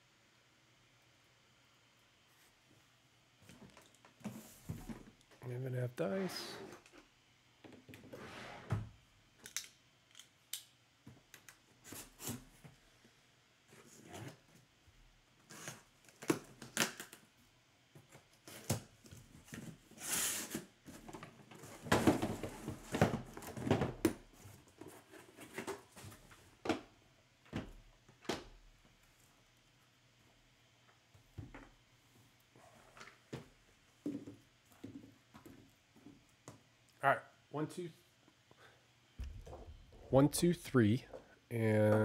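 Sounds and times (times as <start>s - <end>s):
boxes scraping and rustling: 6.0s - 6.9s, 8.0s - 8.8s, 19.4s - 26.4s.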